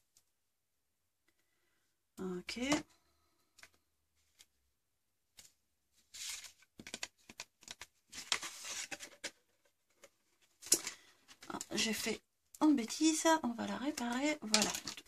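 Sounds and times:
cardstock rustling and scraping: 5.4s - 11.5s.

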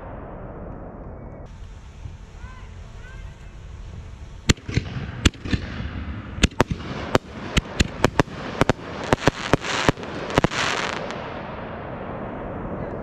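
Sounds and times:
fireworks hissing crackle: 1.5s - 11.4s
fireworks bangs and pops: 3.8s - 11.5s.

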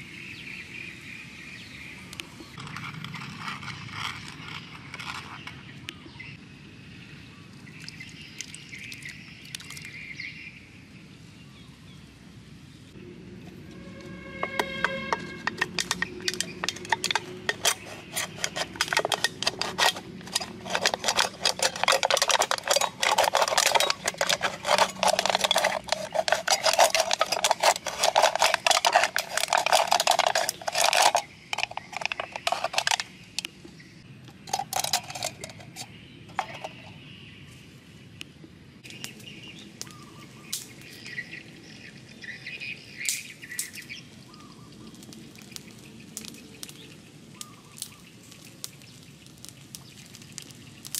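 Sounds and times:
can opener scraping a can: 2.6s - 5.7s, 13.7s - 33.1s, 34.5s - 36.9s.

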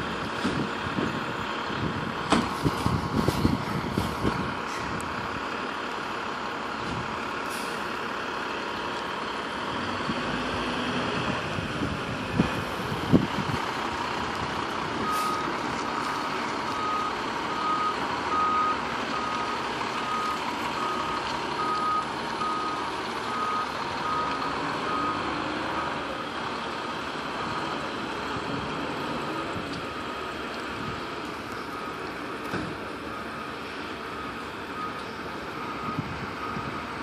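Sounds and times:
truck engine running: 0.0s - 37.0s
truck backup alarm beeping: 14.9s - 25.4s, 29.8s - 37.0s.

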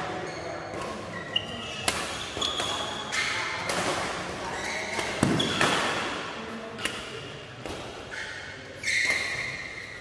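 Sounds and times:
shoes squeaking on court: 0.0s - 5.9s, 8.1s - 10.0s.

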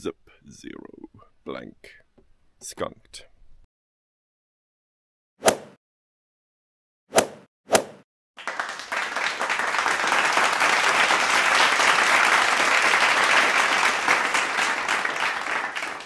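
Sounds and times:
audience applause: 8.4s - 16.0s
sharp hand claps: 8.4s - 16.0s.

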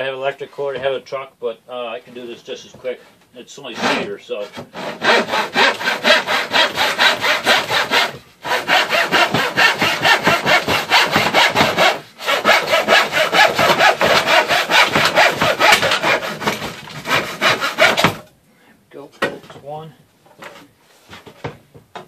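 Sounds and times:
handsaw cutting wood: 3.7s - 18.2s.

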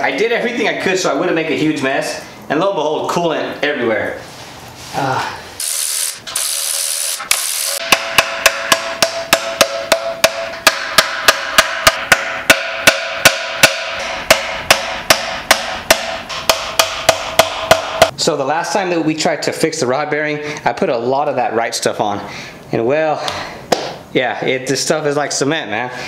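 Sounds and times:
hammer tapping metal: 7.8s - 18.1s.

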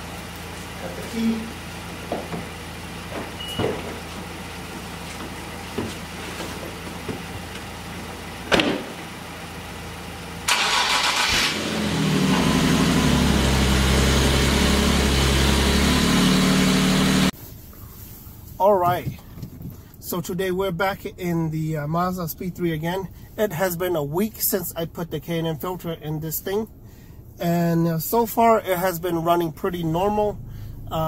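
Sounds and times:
car engine starting and idling: 0.0s - 17.9s, 19.2s - 31.0s
sharp thump: 8.5s - 9.0s.

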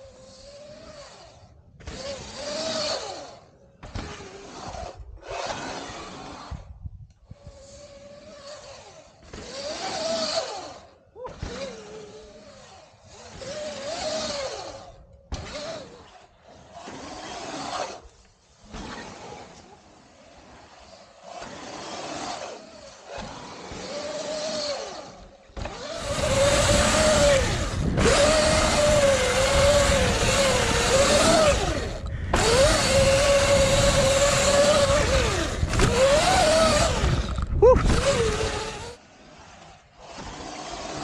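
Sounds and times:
electric dirt bike motor whine: 0.0s - 41.0s
tyre and wind noise: 0.0s - 41.0s.

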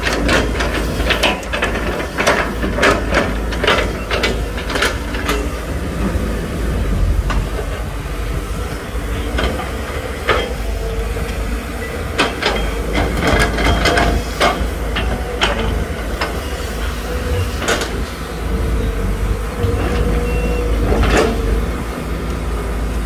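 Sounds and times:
metal knocks and clanks: 0.0s - 10.7s
diesel engine running: 0.0s - 23.0s.

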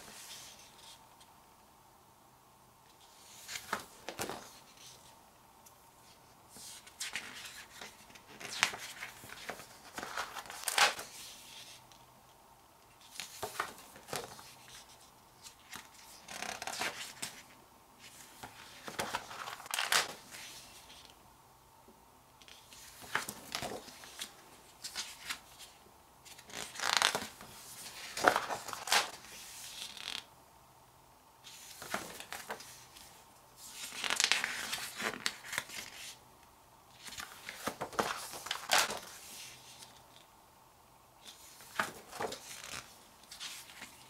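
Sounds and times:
paper rustling and crinkling: 18.1s - 21.1s, 22.4s - 30.2s, 31.5s - 36.2s, 37.0s - 40.2s, 41.2s - 44.0s.

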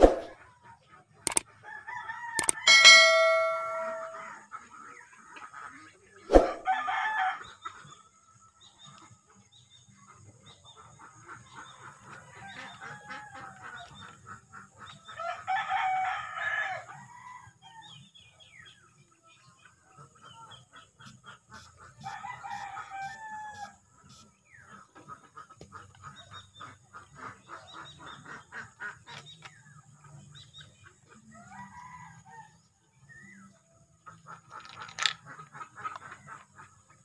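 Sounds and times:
roosters crowing: 1.7s - 4.4s, 15.2s - 17.6s, 22.0s - 23.8s
sharp clicks: 2.4s - 2.6s
chickens clucking: 10.0s - 15.4s, 19.4s - 31.5s, 33.0s - 37.0s.

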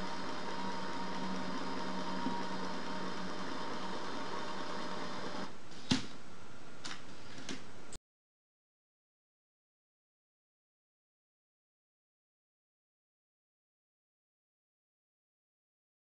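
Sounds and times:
electric motors whirring: 0.0s - 5.5s.

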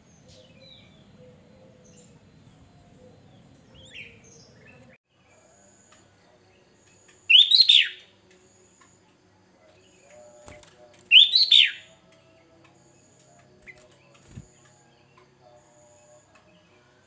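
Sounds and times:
bulbul whistled song: 7.2s - 8.1s, 10.1s - 12.1s.

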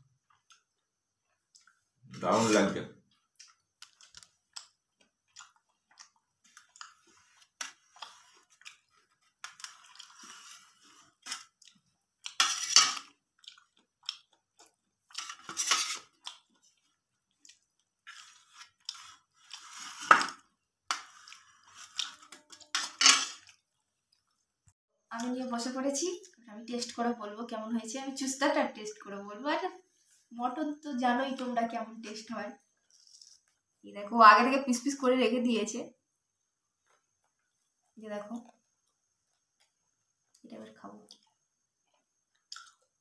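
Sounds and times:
chewing: 3.1s - 12.4s, 13.0s - 19.7s, 41.1s - 43.0s
knife scraping steel plate: 12.4s - 13.0s, 15.4s - 16.1s.

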